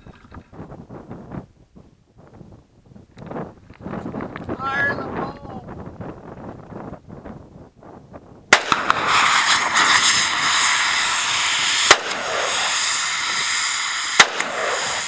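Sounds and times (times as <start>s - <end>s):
gunshots: 8.5s - 13.3s, 14.0s - 15.0s
gas hissing from canister: 8.6s - 15.0s.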